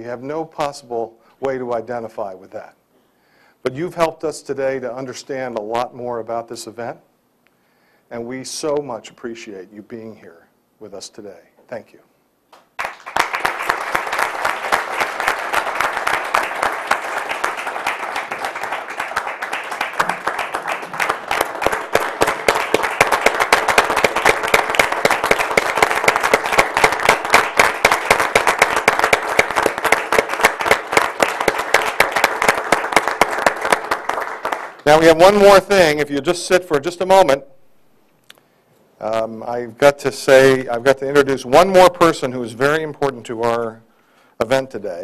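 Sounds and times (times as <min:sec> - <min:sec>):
audience applauding: 0:12.8 - 0:35.4.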